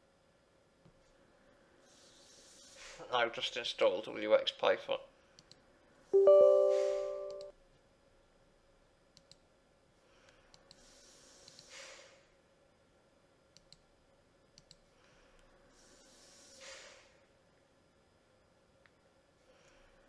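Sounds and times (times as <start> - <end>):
computer mouse clicks: 5.4 - 5.6, 9.2 - 9.4, 10.5 - 11.7, 13.5 - 13.9, 14.5 - 14.8
electronic chime: 6.2 - 7.5
soft breaths: 14.8 - 17.3.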